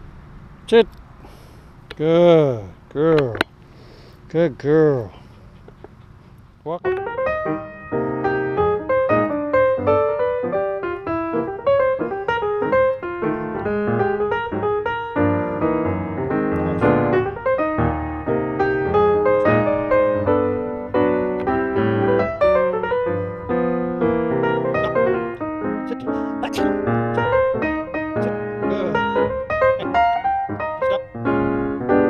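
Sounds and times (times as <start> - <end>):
piano music: 6.7 - 32.0.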